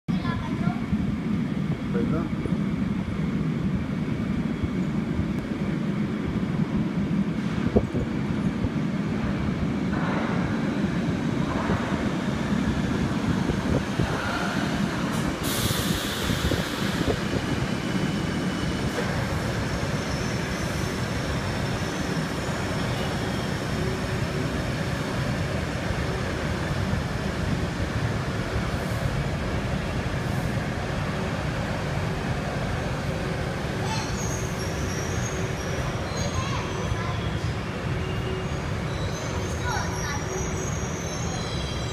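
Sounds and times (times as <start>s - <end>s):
train rumbling into station: 0.1s - 41.9s
loud hiss: 15.1s - 17.3s.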